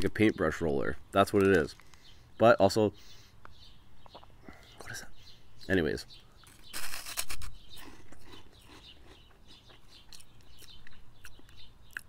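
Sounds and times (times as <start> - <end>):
crunchy snack bite and chewing: 6.4 - 12.0.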